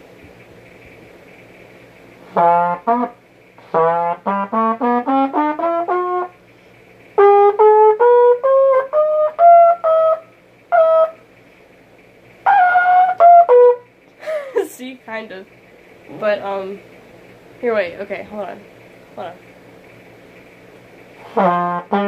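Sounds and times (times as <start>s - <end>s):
trumpet playing scale: 2.3s - 6.4s, 7.2s - 11.2s, 12.5s - 13.9s, 21.2s - 22.0s.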